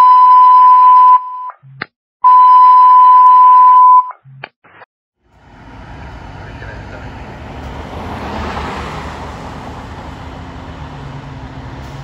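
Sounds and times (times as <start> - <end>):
radio alert beeps: 0.0 - 4.2.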